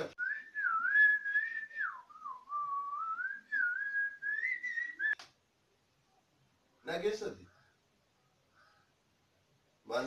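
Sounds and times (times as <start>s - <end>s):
person whistling a tune: 0.2s - 5.2s.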